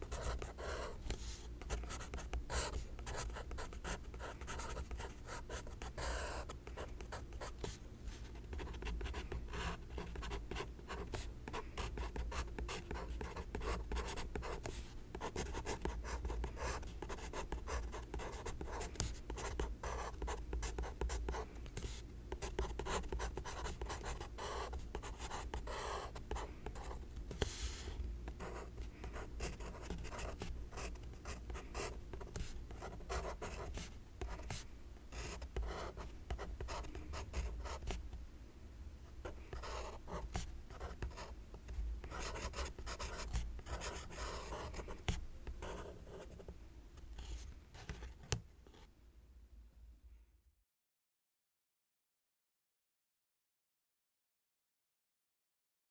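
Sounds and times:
pencil scratching on paper: 0:00.0 - 0:07.6, 0:28.4 - 0:34.6, 0:35.2 - 0:37.9, 0:39.5 - 0:41.3, 0:42.1 - 0:44.9
steady low hum: 0:00.0 - 0:50.3.

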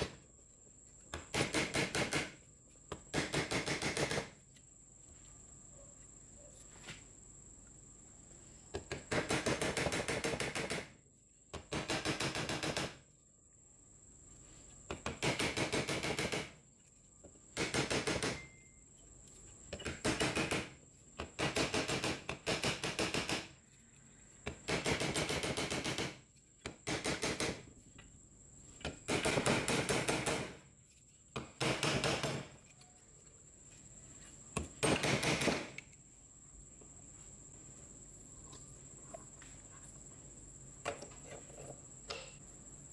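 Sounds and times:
faint high whine: 0:18.4 - 0:19.4.

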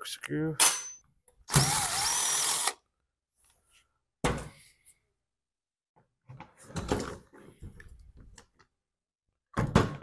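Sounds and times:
cordless driver whining: 0:01.5 - 0:02.8
thump: 0:09.6 - 0:10.0.

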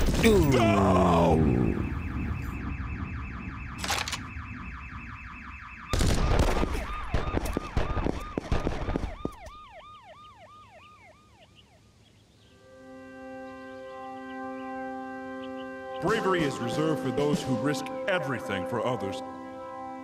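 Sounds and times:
police siren yelping: 0:00.5 - 0:11.9
fast-pulsing alarm: 0:01.1 - 0:11.8
rapid gunfire: 0:05.9 - 0:09.4.

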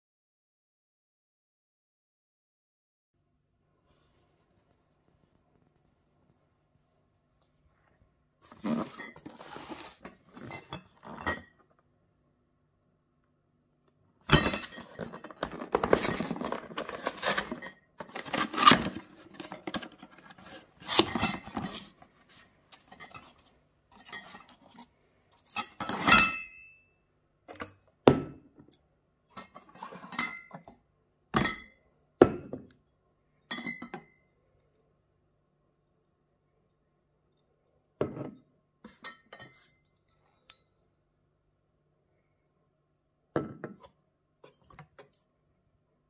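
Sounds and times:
cardboard box opened: 0:08.5 - 0:10.5, 0:14.6 - 0:22.0.

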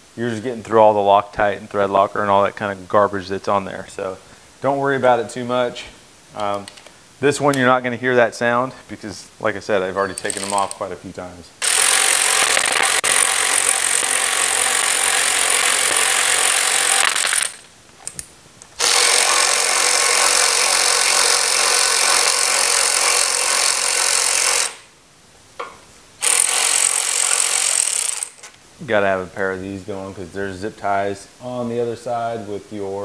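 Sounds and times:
cordless power ratchet running: 0:11.6 - 0:17.6, 0:18.8 - 0:24.8, 0:26.2 - 0:28.5.

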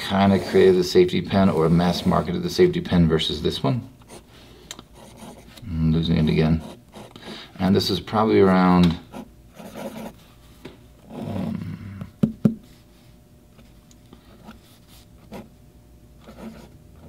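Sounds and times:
pen nib scratching on paper: 0:16.2 - 0:16.8.

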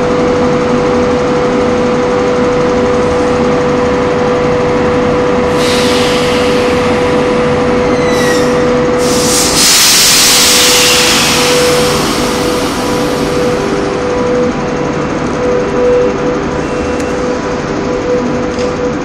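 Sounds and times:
electric locomotive hum with whine: 0:00.0 - 0:19.0
compressed air hissing: 0:05.5 - 0:07.6, 0:08.2 - 0:13.6.

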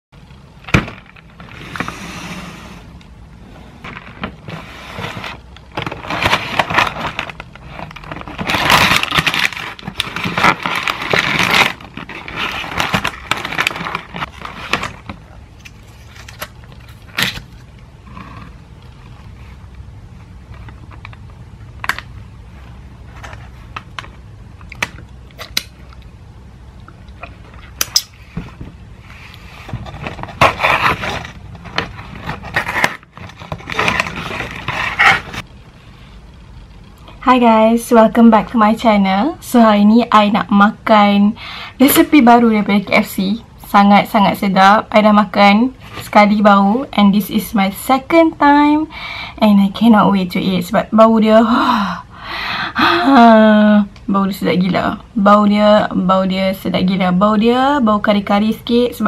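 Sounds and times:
paper wrapping rustling: 0:03.8 - 0:17.7, 0:28.2 - 0:35.5.

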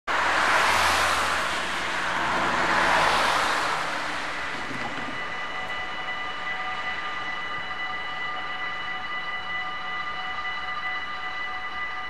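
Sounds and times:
cars passing: 0:00.0 - 0:12.0
level crossing warning bell: 0:01.7 - 0:12.0.

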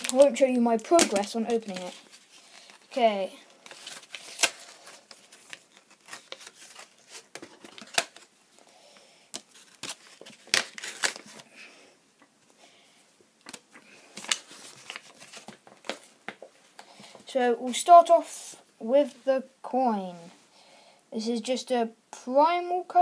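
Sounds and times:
plastic and card crinkling: 0:00.0 - 0:08.7, 0:09.3 - 0:11.5, 0:13.4 - 0:18.0.

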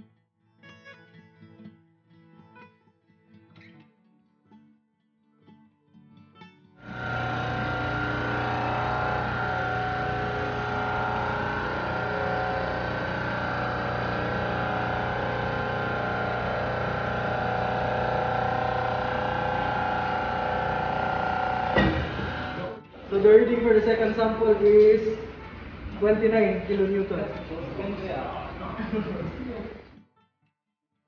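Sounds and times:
hydraulic pump humming and whining: 0:06.8 - 0:29.8.

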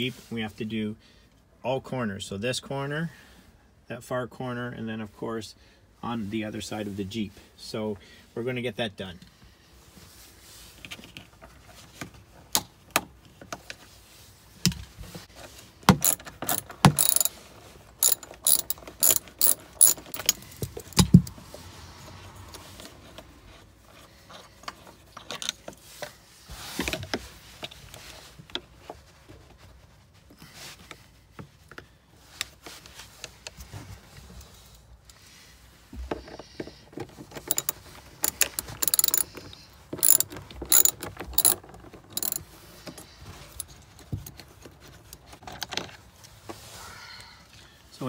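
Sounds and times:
hand ratchet clicking: 0:15.9 - 0:17.4, 0:18.0 - 0:21.3, 0:37.4 - 0:39.4, 0:40.0 - 0:41.6, 0:42.2 - 0:42.4.

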